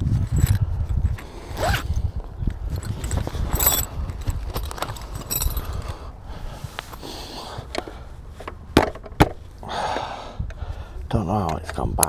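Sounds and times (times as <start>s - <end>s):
scooter seat clicks and knocks: 7.8s - 9.4s.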